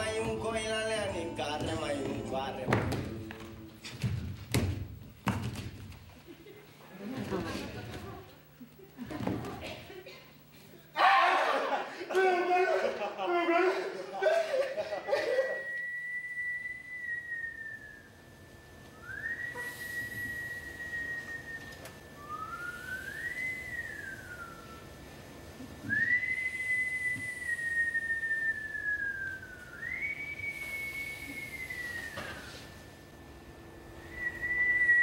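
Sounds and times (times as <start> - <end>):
person whistling long notes: 14.9 - 25.0, 25.8 - 33.2, 33.9 - 35.0.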